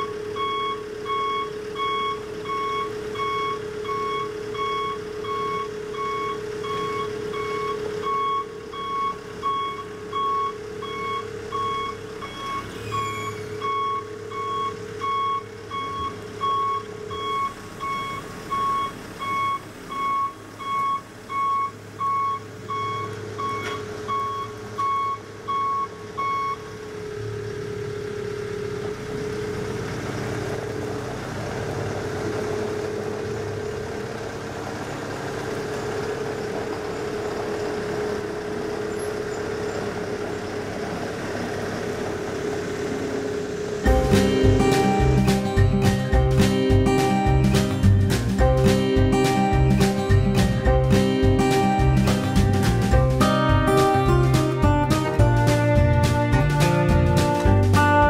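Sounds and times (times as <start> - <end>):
backup alarm beeping: 0.0 - 26.7
diesel engine running: 0.0 - 58.0.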